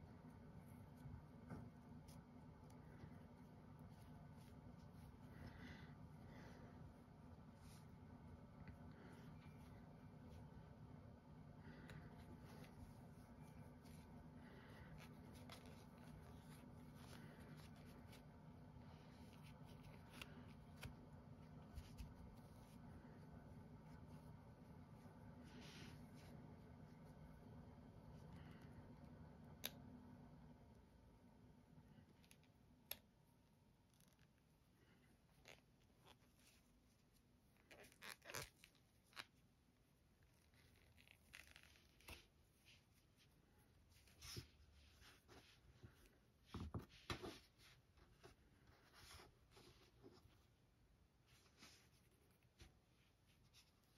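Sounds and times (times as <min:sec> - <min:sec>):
low steady hum: 0:00.0 - 0:53.9
yarn rustling: 0:11.6 - 0:28.6, 0:33.8 - 0:53.9.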